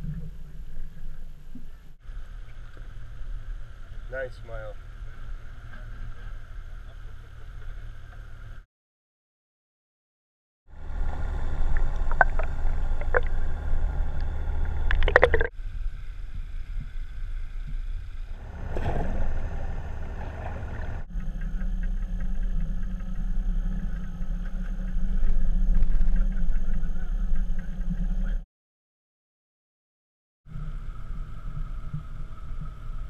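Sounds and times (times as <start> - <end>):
muffled boat motor drone: 0.0 - 8.6, 10.7 - 28.4, 30.5 - 33.0
water noise: 10.7 - 28.3, 30.5 - 33.0
splash: 18.3 - 21.1.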